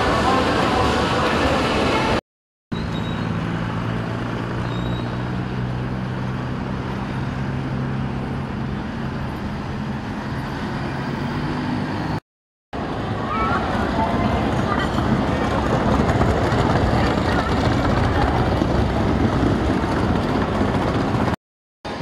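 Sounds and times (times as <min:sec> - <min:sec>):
cars and bus driving past: 0:02.8 - 0:12.2, 0:12.8 - 0:22.0
large engine humming: 0:12.8 - 0:22.0.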